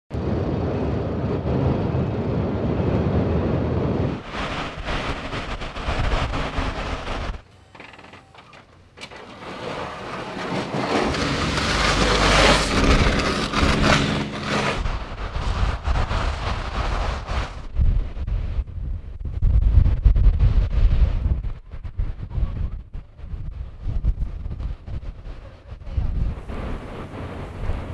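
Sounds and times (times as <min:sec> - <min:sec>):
truck engine: 0:04.4 - 0:15.4
snowplow scraping hiss: 0:09.2 - 0:17.7, 0:26.3 - 0:27.9.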